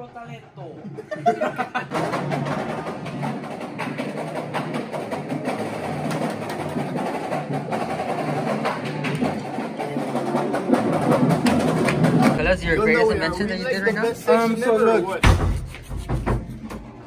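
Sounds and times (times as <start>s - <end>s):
marching drums clattering: 1.4s - 14.2s.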